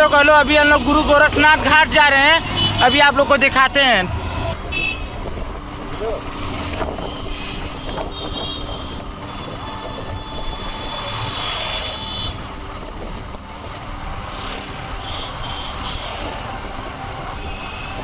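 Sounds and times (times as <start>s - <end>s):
passing motorcycles and trucks: 0.0s - 18.0s
wind on microphone: 5.2s - 11.2s, 12.3s - 15.0s.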